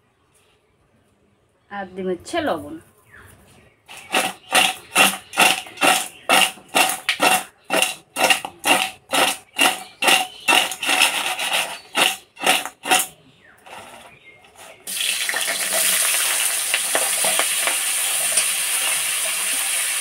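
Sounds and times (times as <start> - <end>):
crab shells clattering in metal bowl: 3.9 - 18.4.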